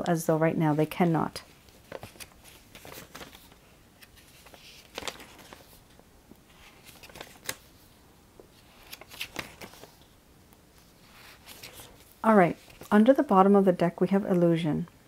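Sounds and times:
cards snapping and rustling: 6.8s - 7.7s, 8.8s - 10.0s.

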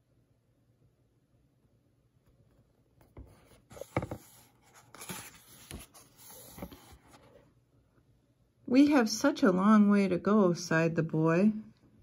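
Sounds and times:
book pages turning: 3.0s - 7.5s
hand rubbing paper: 3.3s - 7.3s.

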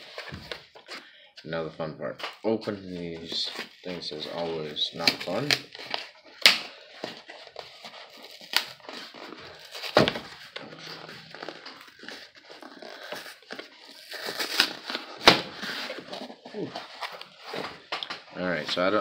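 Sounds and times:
cardboard scraping and tearing: 2.7s - 17.9s.

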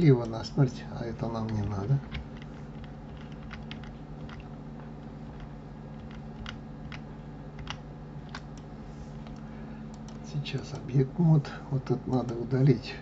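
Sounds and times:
steady low hum: 0.0s - 13.0s
keyboard keys tapping: 1.1s - 10.9s.

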